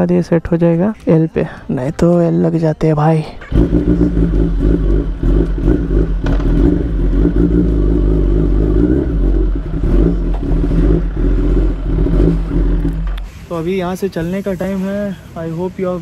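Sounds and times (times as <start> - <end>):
motorcycle engine at low revs: 3.5 - 13.2
second motorcycle engine: 3.5 - 13.2.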